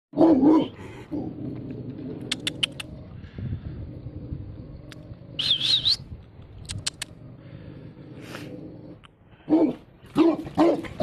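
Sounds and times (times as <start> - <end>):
sharp clicks: 2.2 - 3.0, 6.2 - 7.2
warbling whistle: 5.4 - 6.0.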